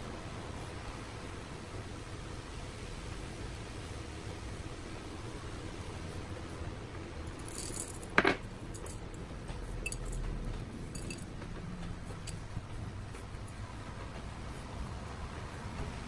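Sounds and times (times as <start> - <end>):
clink on glass bowl: 9.8 - 10.2, 11.0 - 11.2.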